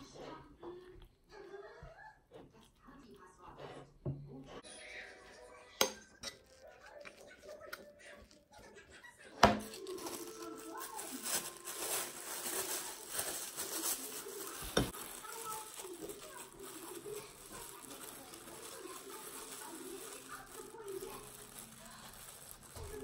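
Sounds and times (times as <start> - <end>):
faint voices: 0.0 - 23.0
plastic glove crinkling: 6.1 - 23.0.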